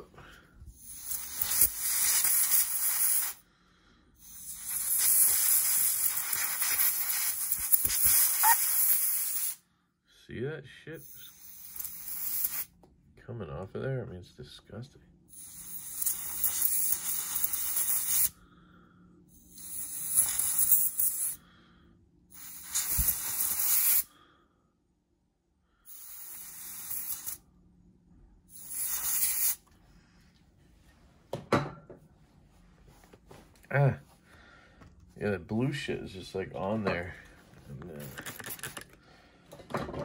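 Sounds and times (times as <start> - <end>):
compressed air bursts hissing: 0.7 - 3.4, 4.2 - 9.6, 11.0 - 12.7, 15.3 - 18.4, 19.4 - 21.4, 22.3 - 24.1, 25.9 - 27.4, 28.5 - 29.6.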